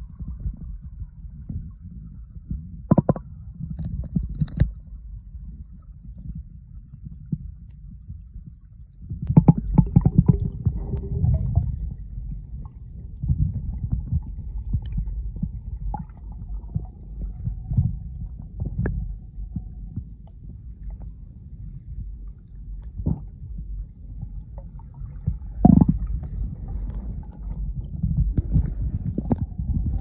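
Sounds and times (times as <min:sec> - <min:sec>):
faint steady hum: 0:00.0 - 0:30.0
underwater water rumble: 0:00.0 - 0:30.0
knocks and clicks: 0:02.9 - 0:03.2.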